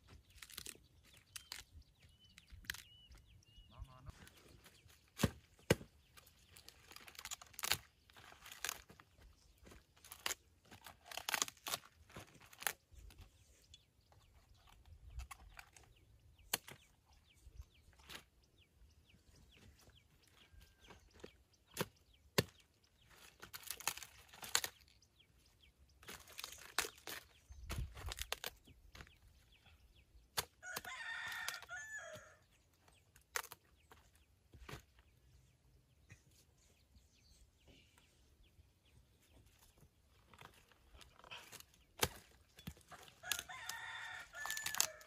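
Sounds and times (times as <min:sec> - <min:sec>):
leaves and stalks snapping: 0:00.3 - 0:03.2, 0:05.1 - 0:09.0, 0:09.6 - 0:13.2, 0:21.2 - 0:25.0, 0:26.0 - 0:29.2, 0:30.3 - 0:32.3, 0:33.1 - 0:34.0, 0:40.2 - 0:45.0.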